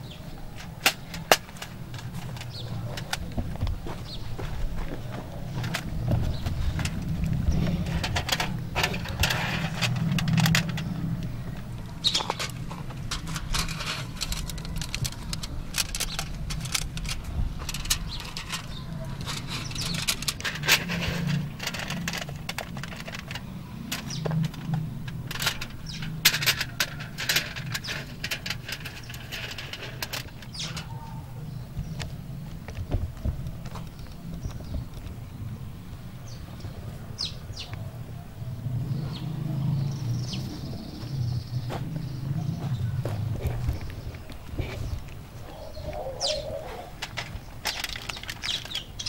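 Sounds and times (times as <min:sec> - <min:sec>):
aluminium foil trays crinkling: 0:11.8 - 0:31.0, 0:46.9 - 0:49.0.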